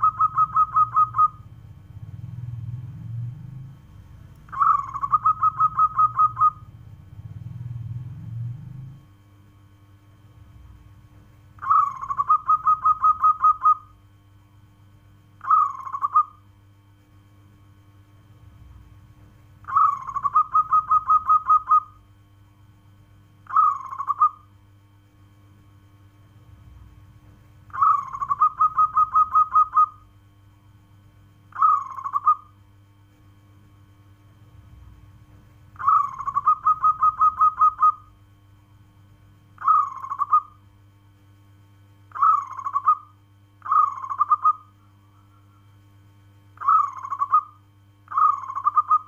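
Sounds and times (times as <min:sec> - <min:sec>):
dove cooing: 0:00.0 - 0:03.8, 0:04.5 - 0:09.0, 0:11.6 - 0:14.0, 0:15.4 - 0:16.4, 0:19.6 - 0:22.0, 0:23.4 - 0:24.5, 0:27.7 - 0:30.1, 0:31.5 - 0:32.6, 0:35.8 - 0:38.1, 0:39.6 - 0:40.6, 0:42.1 - 0:45.7, 0:46.6 - 0:49.0.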